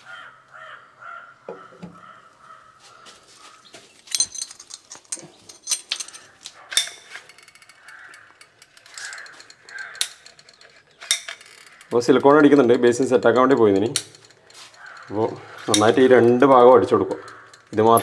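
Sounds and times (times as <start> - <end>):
tools clicking and knocking: 4.0 - 18.0
caulking gun ratcheting click: 5.6 - 18.0.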